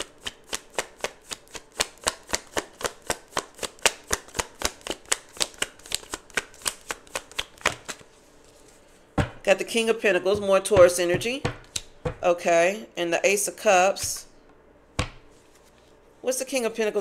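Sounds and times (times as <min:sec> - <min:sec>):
cards being shuffled: 0:00.0 - 0:08.9, 0:10.4 - 0:12.1, 0:15.0 - 0:16.0.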